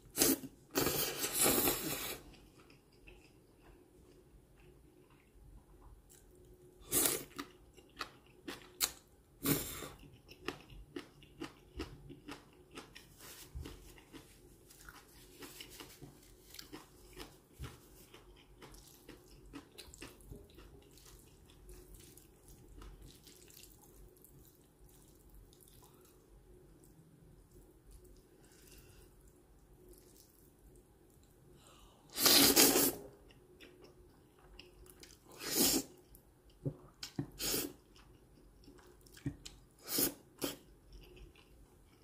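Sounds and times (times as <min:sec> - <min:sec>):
wet chewing and smacking: 0:10.0 - 0:28.7
noodle slurps: 0:32.1 - 0:33.0.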